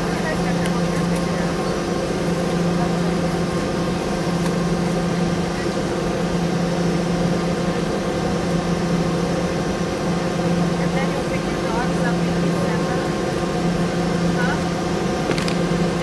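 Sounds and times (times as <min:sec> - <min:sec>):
jet engines humming: 0:00.0 - 0:16.0.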